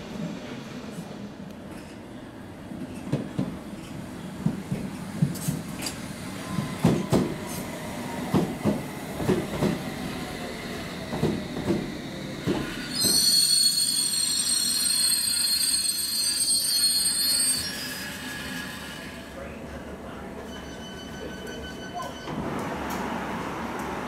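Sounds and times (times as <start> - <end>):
high-pitched brake squeal: 12.8 - 19.2, 20.4 - 22.3.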